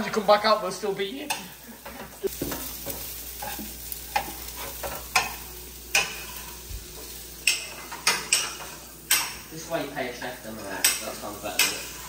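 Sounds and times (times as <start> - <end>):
vegetables sizzling in a frying pan: 0.0 - 12.0
utensils scraping a pan: 1.3 - 9.5, 10.5 - 12.0.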